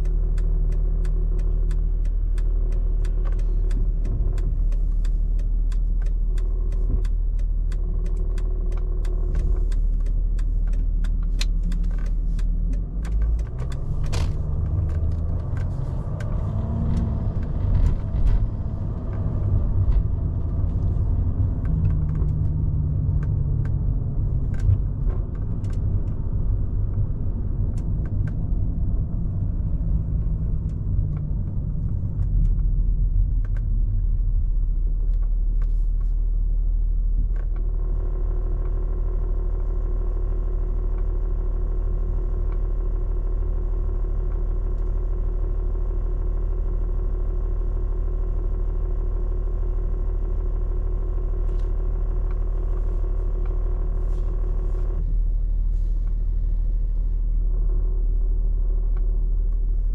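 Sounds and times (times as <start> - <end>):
light clicks and ticks: 0.0 - 34.2
car engine drone: 0.0 - 59.9.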